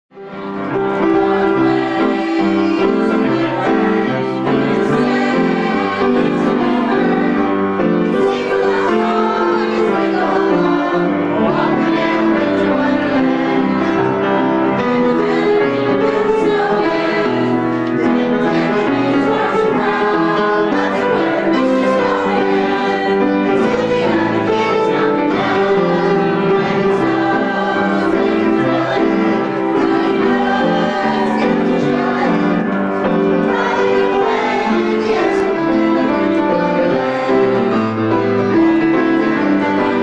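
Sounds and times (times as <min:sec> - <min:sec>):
piano accompaniment: 0:00.1 - 0:40.0
group singing a carol: 0:00.2 - 0:40.0.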